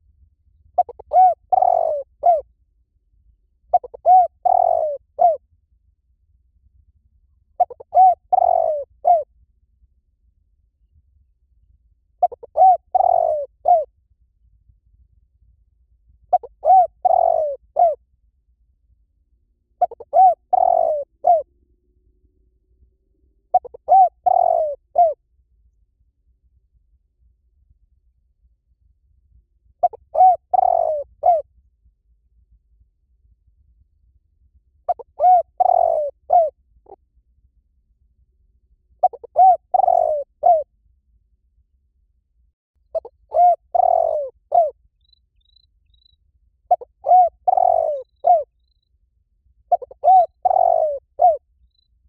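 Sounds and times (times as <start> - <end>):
dove cooing: 0.8 - 2.4, 3.7 - 5.4, 7.6 - 9.3, 12.2 - 13.9, 16.3 - 18.0, 19.8 - 21.5, 23.5 - 25.2, 29.8 - 31.4, 34.9 - 36.6, 39.0 - 40.7, 43.0 - 44.8, 46.7 - 48.5, 49.7 - 51.4.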